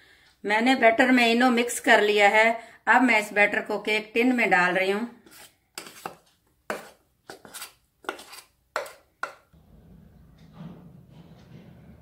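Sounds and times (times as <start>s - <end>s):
metal spoon scraping steel bowl: 5.3s - 9.4s.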